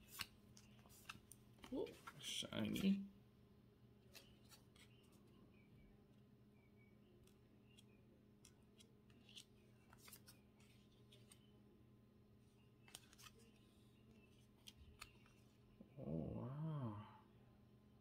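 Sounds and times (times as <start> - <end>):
trading cards flipped by hand: 0.0 - 2.8, 4.1 - 5.0, 7.2 - 11.5, 12.8 - 13.7, 14.3 - 15.6.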